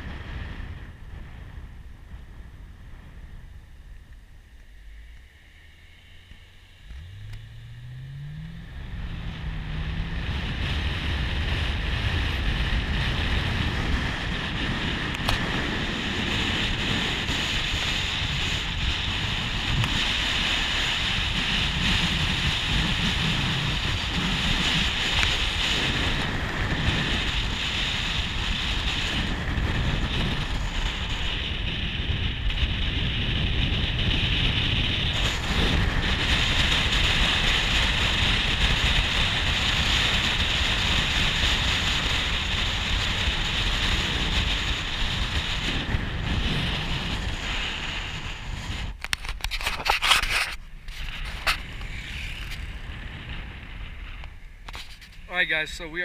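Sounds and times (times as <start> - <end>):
wind and tyre noise: 0.0 - 56.0
car engine accelerating: 3.3 - 15.6.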